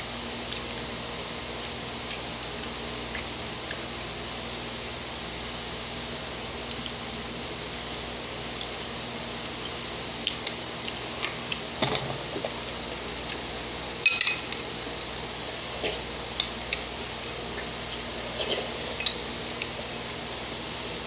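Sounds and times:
spoon clinking against bowl: 14.0 - 14.4.

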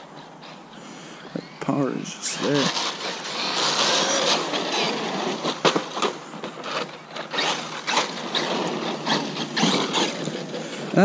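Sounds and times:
electric motor whirring: 2.3 - 6.1
tyre noise on pavement: 2.4 - 11.0.

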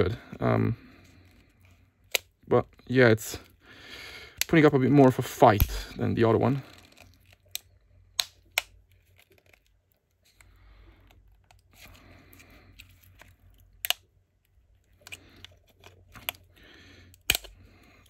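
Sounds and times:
sharp plastic clicks: 6.7 - 9.6, 13.2 - 14.1, 17.1 - 18.0.

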